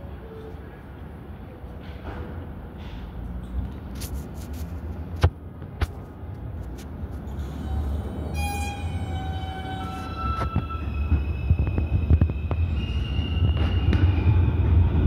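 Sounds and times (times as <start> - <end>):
train rumbling on tracks: 0.0 - 15.0
wheels squealing on rails: 7.2 - 15.0.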